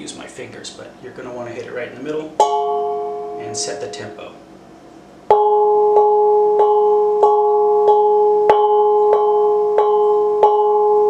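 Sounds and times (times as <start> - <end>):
hand gong struck: 2.4 - 3.8, 5.3 - 11.0.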